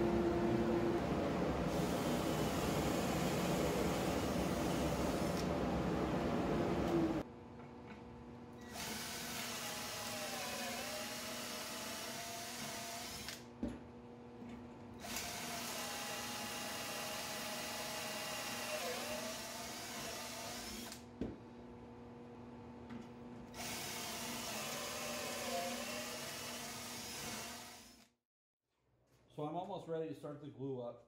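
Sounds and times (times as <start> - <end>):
cordless drill boring into wood: 8.7 - 13.4, 15.0 - 21.0, 23.6 - 28.1.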